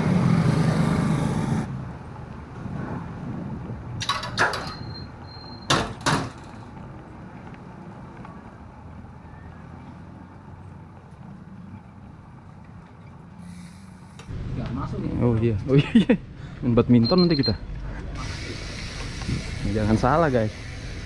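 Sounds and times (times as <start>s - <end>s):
bicycle clanks and rattles: 4.0s - 8.3s.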